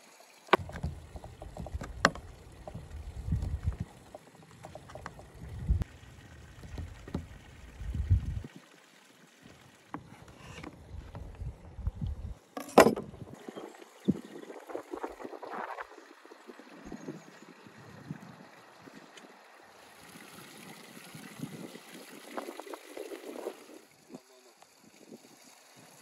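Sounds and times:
wind rumbling on microphone: 0.6s - 4.1s, 4.7s - 5.9s, 6.6s - 8.5s, 10.7s - 12.4s, 13.0s - 19.0s, 21.1s - 23.7s.

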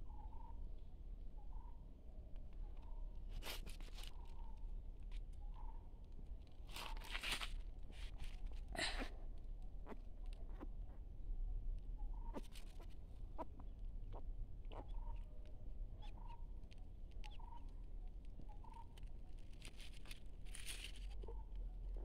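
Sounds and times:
brief rustle: 6.7s - 8.6s.

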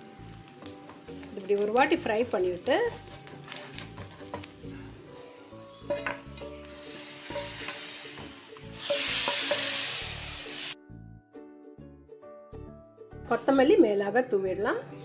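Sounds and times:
spices sizzling in ghee: 0.0s - 10.8s
loud sizzle of tempering poured: 5.4s - 10.8s.

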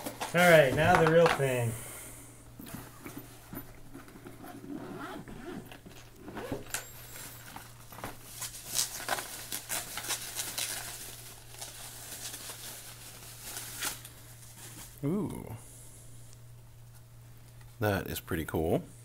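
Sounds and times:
bubble wrap crinkling: 7.2s - 15.6s.

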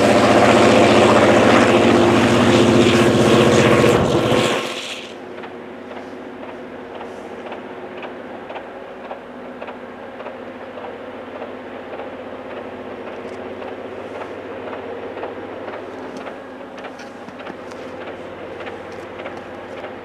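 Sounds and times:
diesel engine drone: 0.0s - 20.0s
sharp clicks and ticks: 6.4s - 20.0s.

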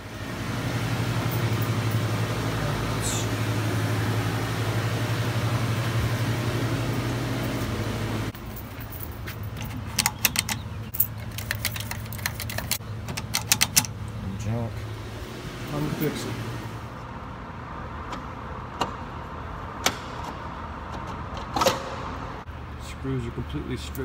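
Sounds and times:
pool pump humming: 0.0s - 8.4s, 9.7s - 17.0s
key ring jingling: 8.4s - 13.9s
card lock clicking: 9.9s - 14.0s.

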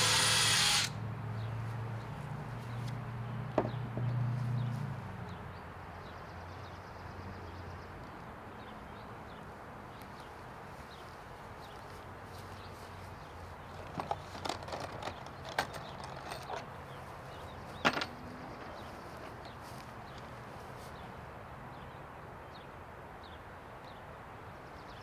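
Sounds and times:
background noise: 0.0s - 25.0s
wooden knocks and clatter: 3.6s - 4.1s, 13.8s - 16.7s.

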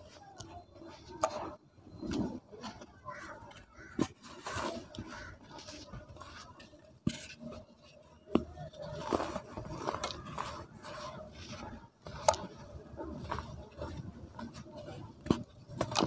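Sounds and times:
cement crunching and crackling: 3.8s - 16.0s.

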